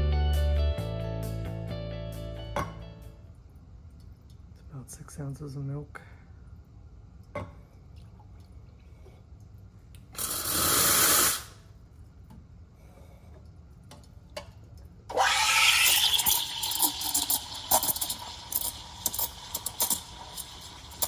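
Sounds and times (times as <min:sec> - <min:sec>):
steam wand purge hiss: 0:10.2 - 0:11.6
steam wand steaming milk: 0:10.2 - 0:11.6, 0:15.1 - 0:21.0.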